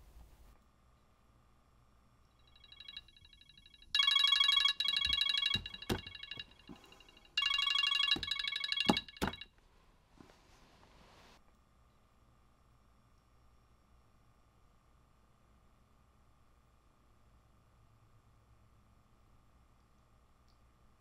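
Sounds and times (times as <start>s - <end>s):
smartphone ringing: 2.5s - 9.4s
phone knocking on table: 4.0s - 9.4s.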